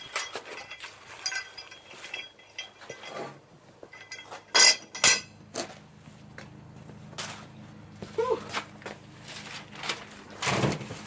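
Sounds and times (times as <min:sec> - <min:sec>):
metal chains clinking: 0:00.0 - 0:05.4.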